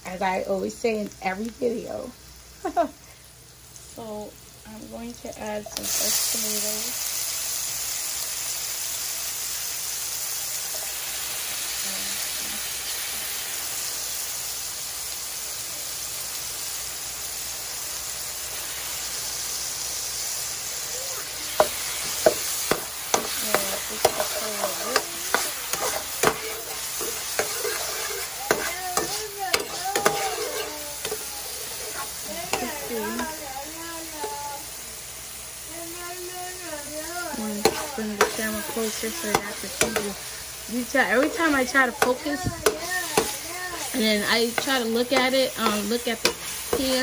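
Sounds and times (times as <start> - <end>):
vegetables sizzling in a frying pan: 0.0 - 47.0
metal spoon scraping a pan: 21.5 - 33.4, 37.3 - 47.0.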